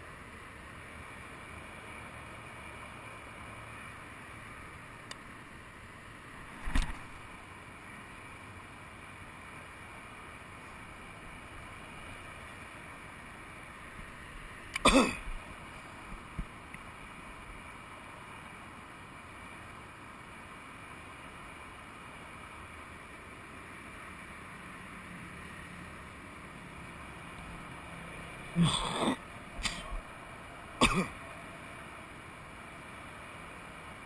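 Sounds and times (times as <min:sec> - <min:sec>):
outdoor background noise: 0:00.0 - 0:34.0
person clearing throat: 0:14.8 - 0:15.2, 0:28.6 - 0:30.0, 0:30.8 - 0:31.2.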